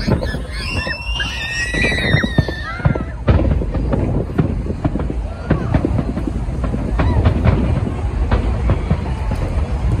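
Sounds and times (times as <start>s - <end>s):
spectators whooping: 0.0s - 3.3s, 6.8s - 7.8s
fireworks bursting with bangs: 0.0s - 10.0s.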